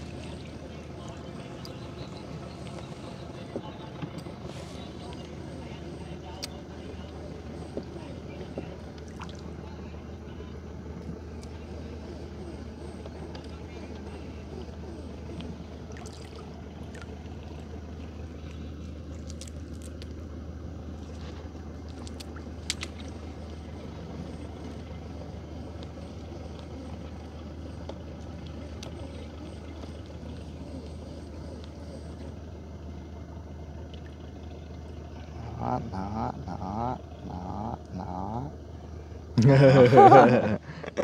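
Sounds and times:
boat engine running at low speed: 0.0 - 41.0.

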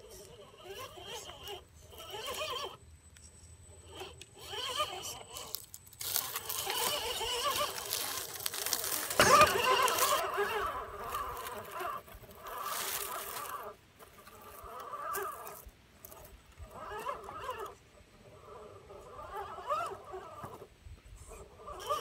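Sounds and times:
electric motor whining: 3.7 - 20.7
tires crackling over rocks and leaves: 3.9 - 20.7.

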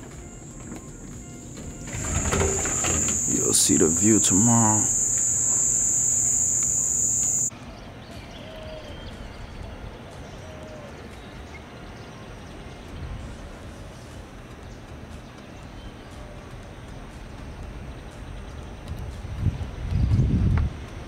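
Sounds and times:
night insects chirring: 0.0 - 7.5
faint bird-like chirps: 0.2 - 7.5.

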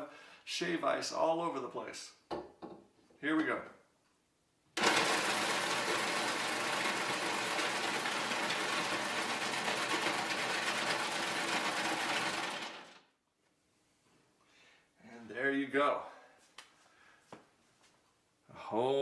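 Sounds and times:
electric ice shaver whirring: 4.8 - 13.0.

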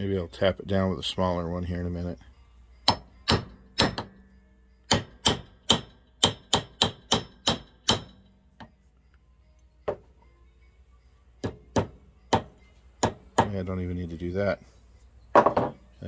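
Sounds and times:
hammer tapping on metal: 2.8 - 4.2, 4.9 - 8.8, 11.4 - 13.6.

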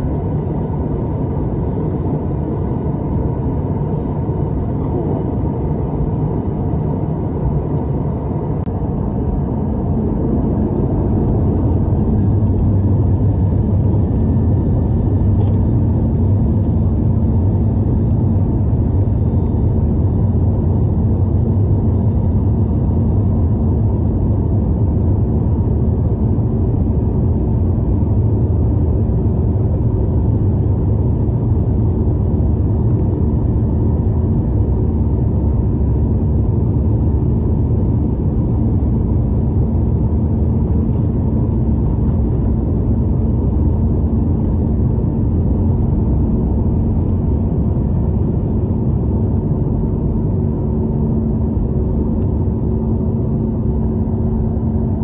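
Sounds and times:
jet engines rumbling: 0.0 - 55.0
steady low hum: 0.0 - 55.0.

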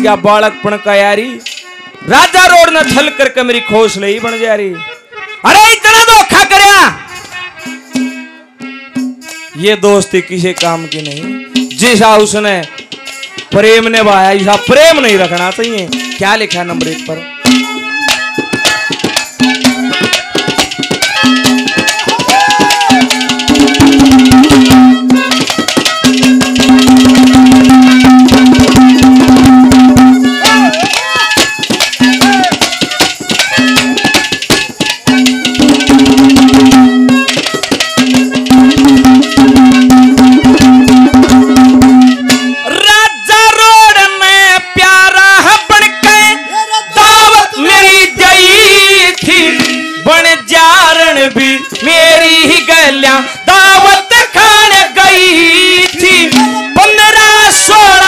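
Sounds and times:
held melodic note: 0.0 - 43.7
wavering melody with vibrato: 0.0 - 44.3, 45.2 - 58.0
hand drum fast beat: 10.5 - 42.6, 53.5 - 58.0.

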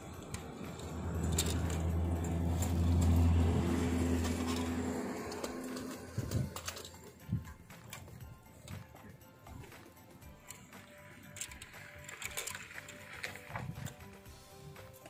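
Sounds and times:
vehicle engine passing by: 0.0 - 7.5.

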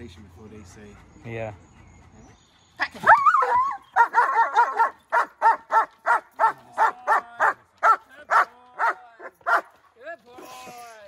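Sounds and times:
dog barking rapidly: 3.4 - 9.7.

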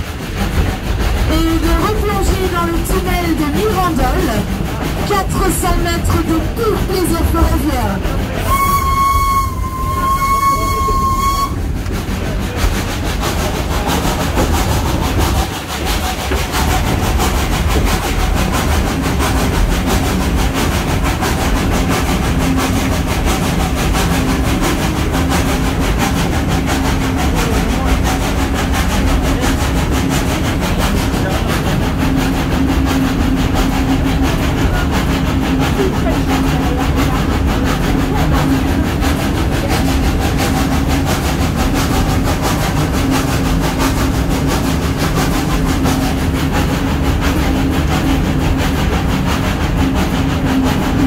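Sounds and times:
train running rumble: 0.0 - 51.0
steam locomotive whistle: 8.4 - 11.7.

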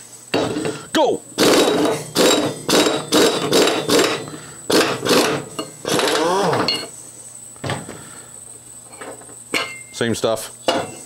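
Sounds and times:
short metallic clink: 9.5 - 10.0.

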